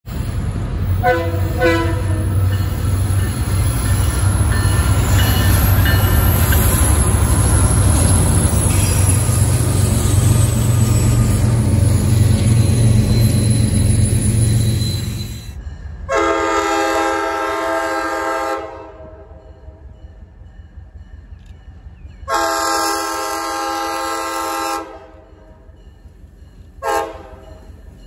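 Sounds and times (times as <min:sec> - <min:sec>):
train wheels rumbling on rails: 0:00.0 - 0:28.0
locomotive engines droning: 0:00.1 - 0:28.0
high wheel squeal: 0:02.2 - 0:15.6.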